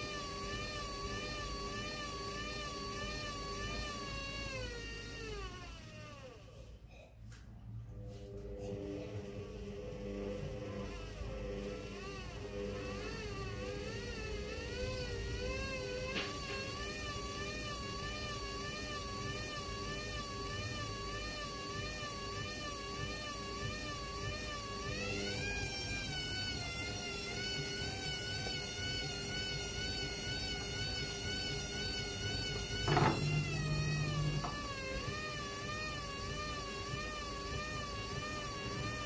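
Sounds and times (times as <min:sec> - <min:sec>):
washing machine motor whine: 0:00.0 - 0:39.0
short low hum: 0:06.5 - 0:16.2, 0:30.4 - 0:35.6.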